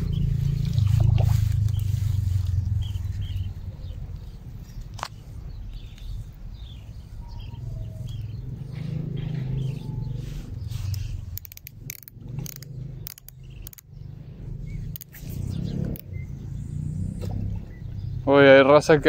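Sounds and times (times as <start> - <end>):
low rumble: 0.0 - 18.3
faint bird chirps: 5.5 - 11.5.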